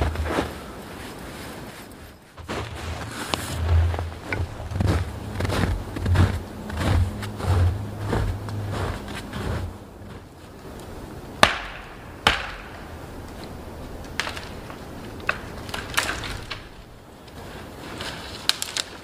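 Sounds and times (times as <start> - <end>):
dead wood cracking: 2.4 - 19.0
wood snaps and knocks: 11.4 - 17.0, 18.0 - 19.0.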